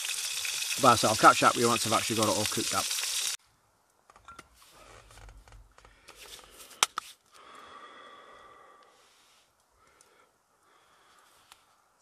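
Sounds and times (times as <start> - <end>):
food sizzling in a pan: 0.0 - 3.4
faint steady hiss: 0.0 - 5.1, 5.8 - 12.0.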